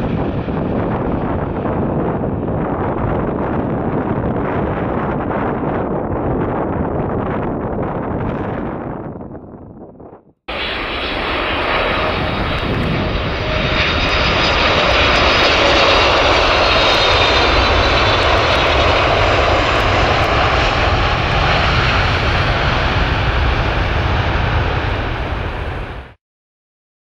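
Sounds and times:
airliner cabin engine rush: 0.0 - 9.3, 10.0 - 26.2.

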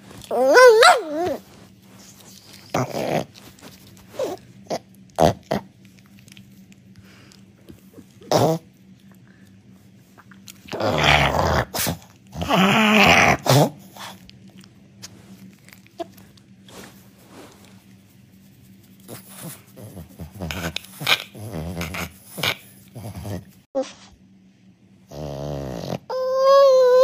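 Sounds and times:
dog grumbling and groaning: 0.0 - 1.6, 2.5 - 5.8, 7.8 - 8.7, 10.6 - 14.1, 19.1 - 24.0, 25.1 - 27.0.

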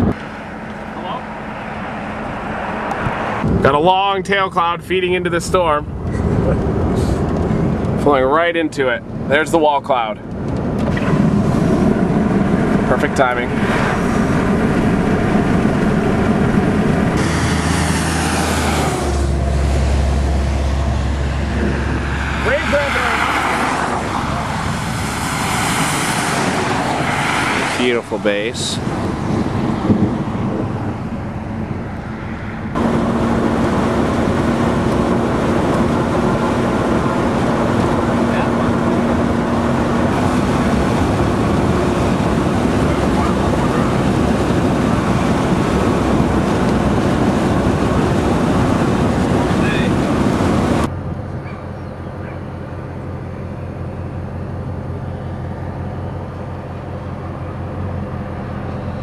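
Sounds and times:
car driving on highway: 0.0 - 59.0
vehicle noise: 0.0 - 59.0
steady low hum: 10.2 - 23.2, 27.9 - 59.0
wind rushing: 10.4 - 50.9.

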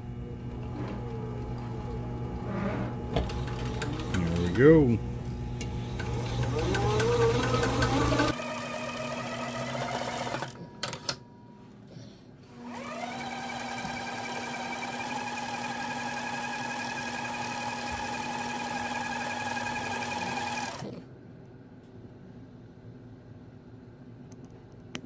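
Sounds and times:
small electric motor whining: 5.6 - 10.6.

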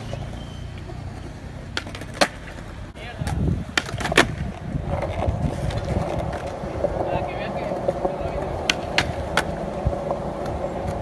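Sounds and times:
skateboard clacking on ground: 0.0 - 11.0
skateboard wheels rolling on concrete: 0.0 - 11.0.

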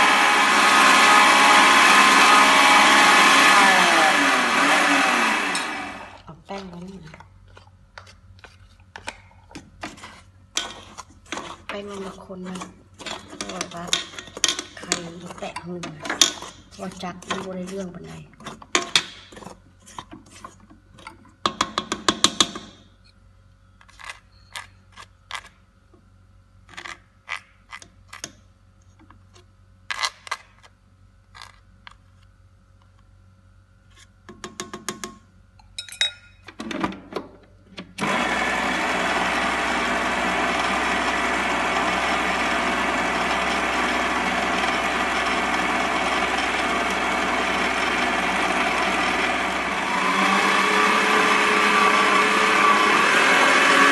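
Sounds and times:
electric stand mixer running: 0.0 - 6.3, 38.0 - 53.9
utensil clinking on steel bowl: 35.6 - 36.4.

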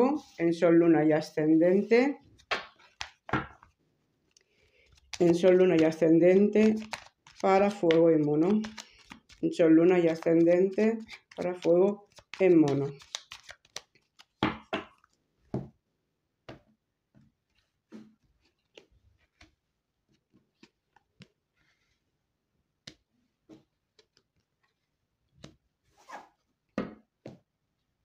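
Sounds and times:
cards tapping and sliding on table: 2.4 - 3.7.

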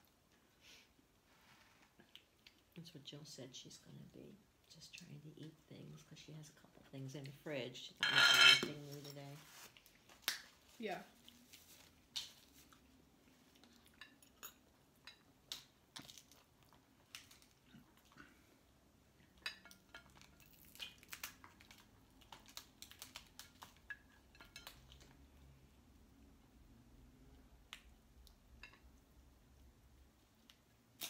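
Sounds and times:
crab shells cracking: 19.9 - 23.9.

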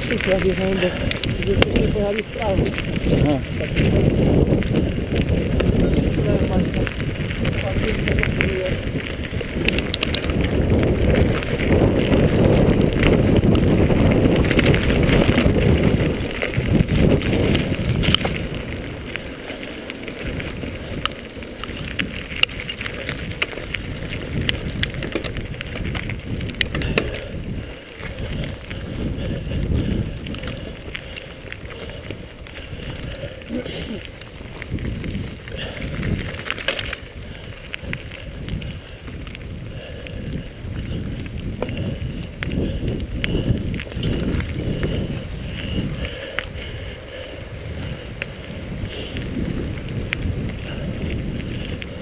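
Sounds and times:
bike clicks and rattles: 0.0 - 52.0
tyres rumbling on dirt: 0.0 - 52.0
wind buffeting microphone: 0.0 - 52.0.

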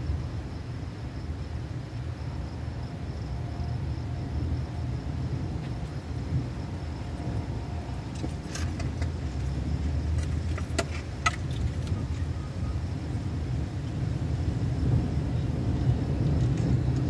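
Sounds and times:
low rumble: 0.0 - 17.0
metallic jingles and clicks: 8.1 - 12.3.

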